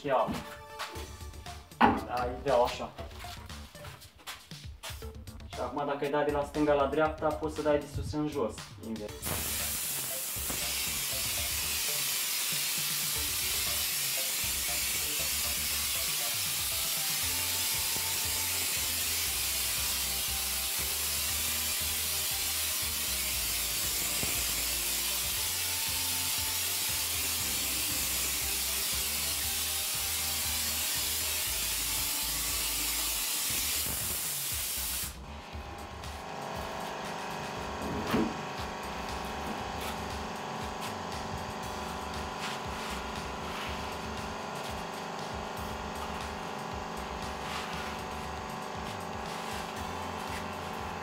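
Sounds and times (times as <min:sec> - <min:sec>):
background music: 0:00.0 - 0:51.0
spray gun hissing: 0:09.2 - 0:35.2, 0:38.8 - 0:51.0.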